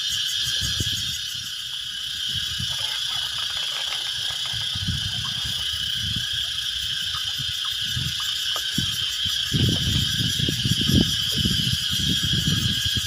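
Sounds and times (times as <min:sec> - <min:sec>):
high-pitched insect drone: 0:00.0 - 0:13.0
water splashing and pouring: 0:02.3 - 0:10.6.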